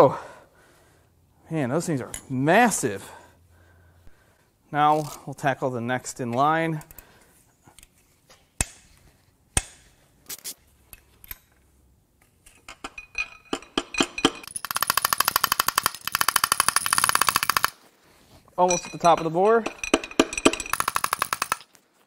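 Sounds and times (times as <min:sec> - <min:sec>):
ratchet wrench clicking: 0:14.4 - 0:17.8.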